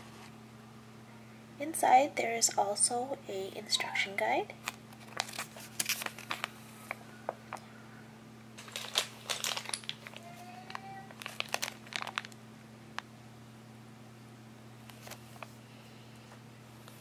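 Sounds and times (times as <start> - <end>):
faint steady hum: 0.0 - 17.0
paper crinkling and rustling: 4.6 - 7.0, 8.6 - 12.4, 14.9 - 15.6.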